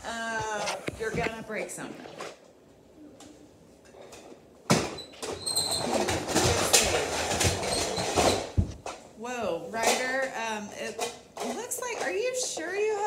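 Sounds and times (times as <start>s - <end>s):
plastic toys clattering and rattling: 4.0s - 9.0s, 9.7s - 13.0s.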